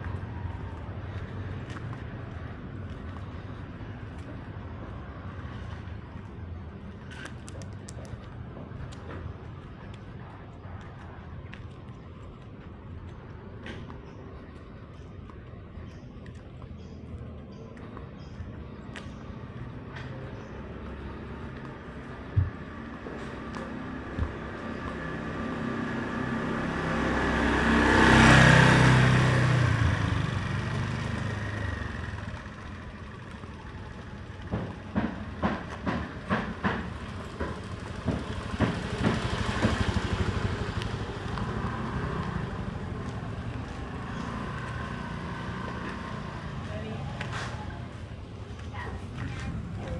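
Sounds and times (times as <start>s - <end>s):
motor vehicle passing: 18.6s - 49.9s
sharp knocks and clatters: 34.4s - 40.1s.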